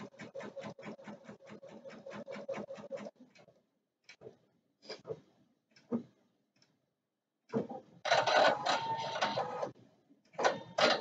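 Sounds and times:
soft machine ticks: 3.1 - 4.4, 5.7 - 6.8.

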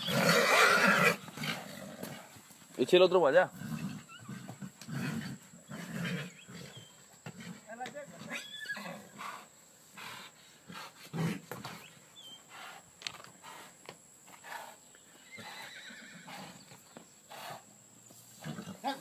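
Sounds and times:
horse whinnying: 0.0 - 2.3, 3.5 - 7.6, 8.2 - 9.2, 15.2 - 16.7
hooves on packed dirt: 0.0 - 19.0.

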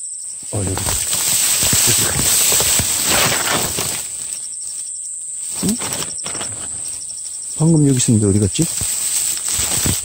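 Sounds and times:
high insect buzz: 0.0 - 10.0
rapid insect pulses: 0.0 - 10.0
dry grass rustling: 0.2 - 10.0.

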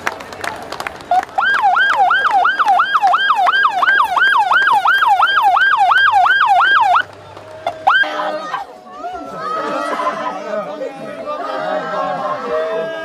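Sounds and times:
electronic siren yelping: 1.4 - 7.0.

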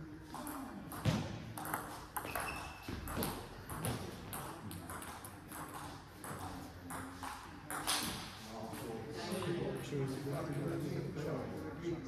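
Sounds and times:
table tennis balls clicking: 0.3 - 8.1.

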